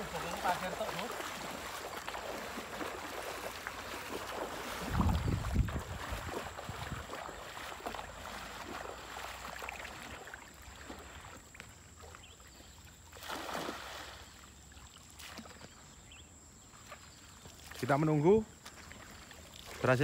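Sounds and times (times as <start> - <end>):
loud splash: 0.0 - 11.2, 13.1 - 14.3
water sloshing around wading legs: 0.0 - 20.0.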